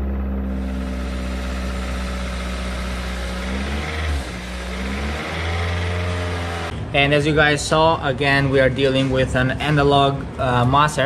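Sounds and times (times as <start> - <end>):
car engine idling and revving: 0.0 - 6.9.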